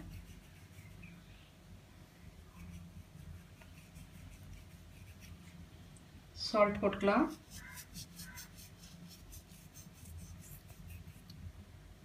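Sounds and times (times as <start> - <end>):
scratchy rustles of sprinkling pepper: 0.0 - 1.2, 2.5 - 5.6, 7.2 - 11.4
low steady hum: 0.0 - 12.0.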